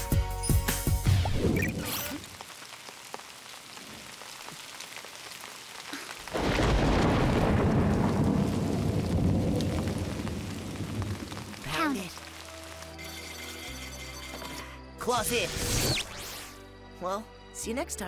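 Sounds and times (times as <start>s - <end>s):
steady rain: 0.1s - 13.8s
thunder rumbling: 6.2s - 11.8s.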